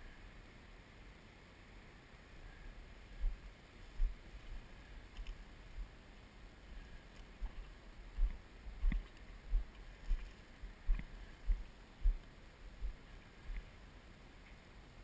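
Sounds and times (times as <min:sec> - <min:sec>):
muffled footsteps: 0:03.2 - 0:05.9, 0:07.1 - 0:13.8.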